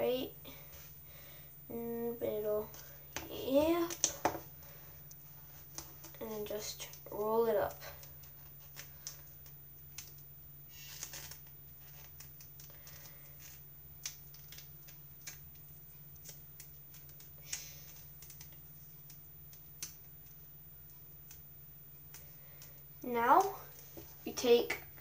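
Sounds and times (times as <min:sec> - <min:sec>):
tape rustling: 0:05.0 - 0:24.4.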